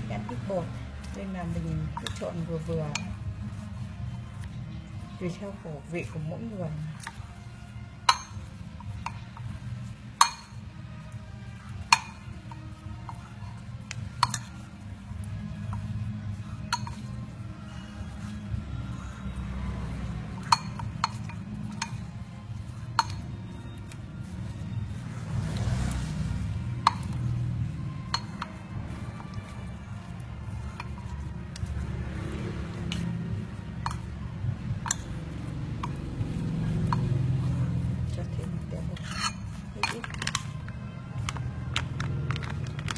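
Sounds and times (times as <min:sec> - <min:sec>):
utensils clinking against ceramic bowl: 0:00.0 - 0:03.6, 0:05.3 - 0:10.7, 0:11.5 - 0:16.0, 0:16.6 - 0:19.1, 0:19.8 - 0:25.0, 0:28.0 - 0:31.8, 0:32.9 - 0:42.9
metal spoon clinking on bowl: 0:08.0 - 0:09.5, 0:10.2 - 0:10.6, 0:13.9 - 0:14.7, 0:16.6 - 0:17.2, 0:20.3 - 0:22.1, 0:22.8 - 0:23.4, 0:28.1 - 0:28.6, 0:33.8 - 0:34.2, 0:39.0 - 0:40.7.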